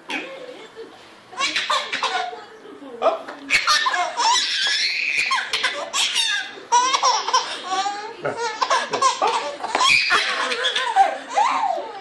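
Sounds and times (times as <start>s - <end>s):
baby laughing: 1.4s - 2.4s, 3.5s - 12.0s.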